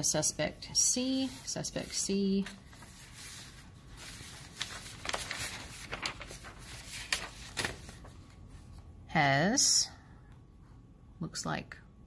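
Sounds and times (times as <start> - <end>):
paper rustling and clicks: 4.0 - 8.4.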